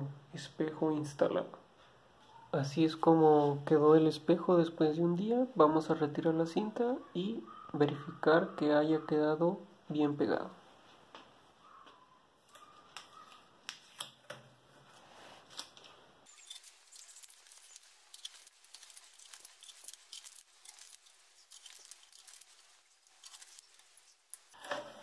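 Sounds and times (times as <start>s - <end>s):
tape being peeled off: 15.4s - 24.6s.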